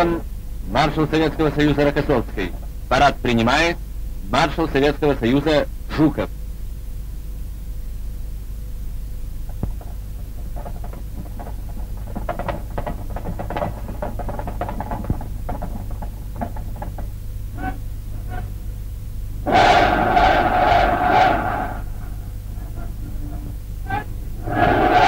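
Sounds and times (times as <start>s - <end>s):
steady low hum: 0.0s - 25.0s
hooves clattering on stone: 9.4s - 18.6s.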